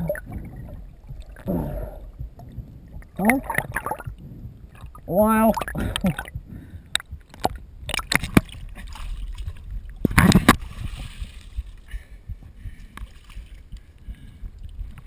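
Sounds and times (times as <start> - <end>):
water sloshing and dripping: 0.0 - 15.0.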